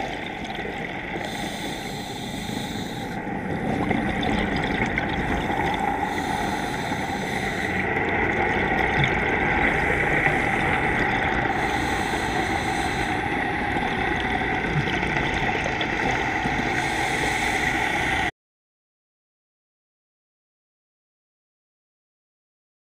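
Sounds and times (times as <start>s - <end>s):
constant hum: 0.0s - 18.3s
underwater drone: 0.0s - 18.3s.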